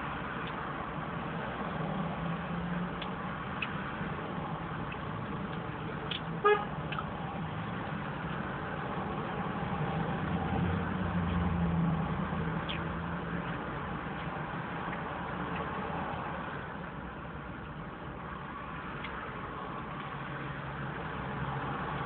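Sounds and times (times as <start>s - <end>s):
deep vehicle rumble: 0.0s - 22.0s
car horn toot: 6.4s - 6.7s.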